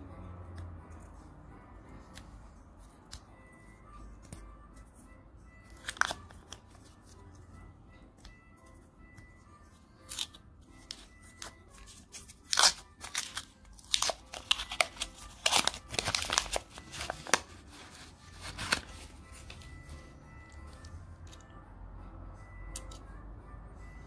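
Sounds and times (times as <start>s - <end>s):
paper wrapper tearing and crinkling: 5.7s - 6.6s, 10.1s - 10.4s, 11.4s - 19.5s.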